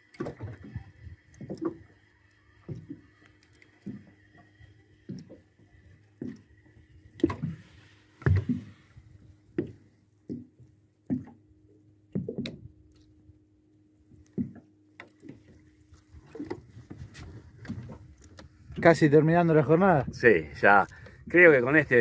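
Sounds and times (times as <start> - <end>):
dull knocks and thumps: 8.2 - 8.8.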